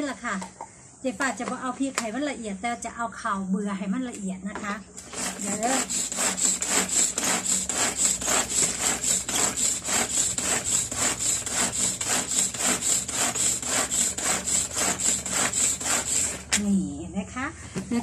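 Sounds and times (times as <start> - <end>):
hand grinder rasping: 5.0 - 16.6.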